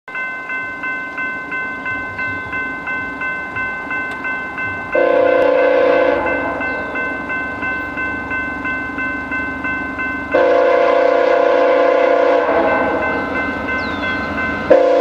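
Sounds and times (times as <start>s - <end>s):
level crossing bell ringing: 0.1s - 15.0s
train horn blast: 5.0s - 6.8s, 10.3s - 13.3s, 14.7s - 15.0s.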